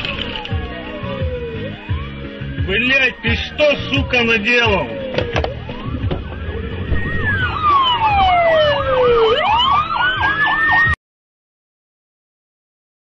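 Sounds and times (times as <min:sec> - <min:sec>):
siren slow wail: 0:00.4 - 0:11.0
siren fast warble: 0:05.7 - 0:11.0.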